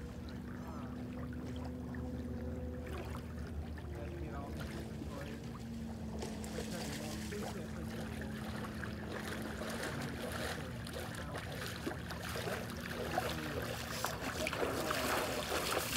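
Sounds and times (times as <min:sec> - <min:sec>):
water sloshing and lapping: 0:00.0 - 0:15.9
splashes from wading legs: 0:01.1 - 0:15.9.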